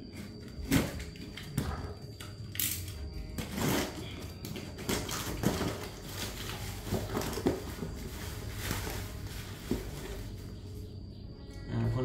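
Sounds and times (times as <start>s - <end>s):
packing wrap rustling: 3.4s - 10.6s.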